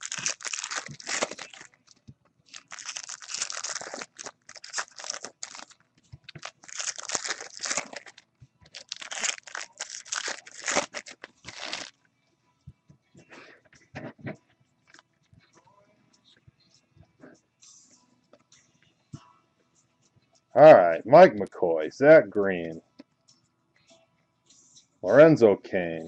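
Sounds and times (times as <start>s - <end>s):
foil wrappers tearing and crinkling: 0.0s - 1.8s, 2.5s - 11.9s.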